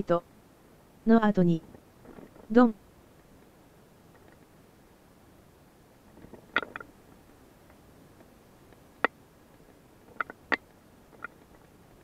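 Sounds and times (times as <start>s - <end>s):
sharp clicks and knocks: 6.2s - 6.9s, 10.1s - 11.7s.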